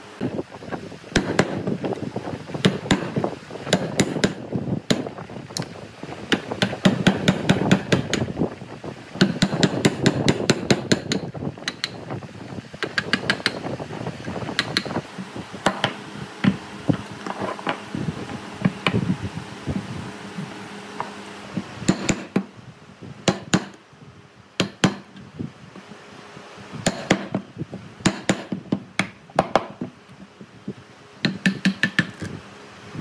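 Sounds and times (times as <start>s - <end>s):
tools knocking on wood: 6.3s - 8.3s, 15.6s - 16.6s, 31.2s - 32.2s.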